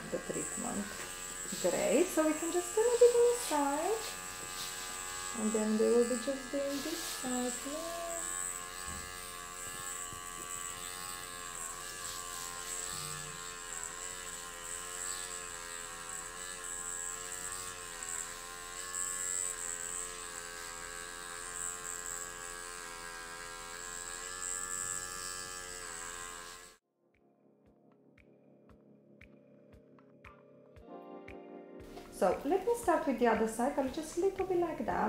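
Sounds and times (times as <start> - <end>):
microneedling pen buzzing: 0.0 - 26.8, 31.9 - 35.0.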